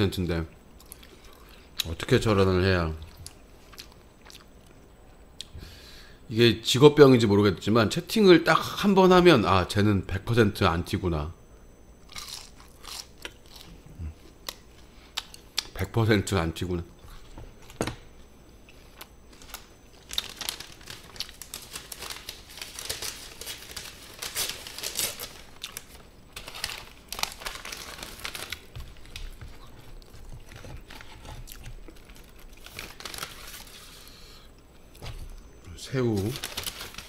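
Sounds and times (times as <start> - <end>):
plastic packaging crinkling and tearing: 19.0 - 33.9, 36.1 - 37.0.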